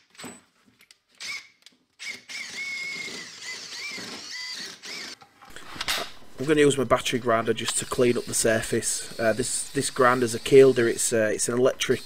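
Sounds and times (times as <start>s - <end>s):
power drill boring through steel: 1.2s - 5.2s, 7.8s - 12.0s.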